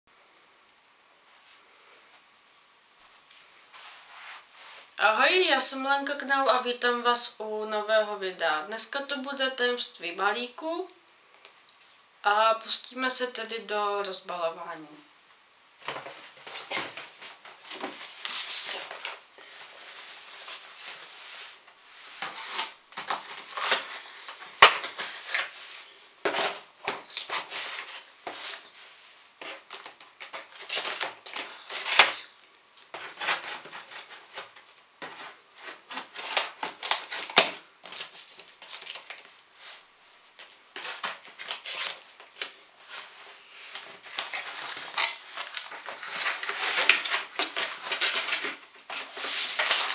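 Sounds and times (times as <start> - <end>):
packing tape pulled: 35.9 - 39.3, 40.4 - 42.5, 43.7 - 49.9.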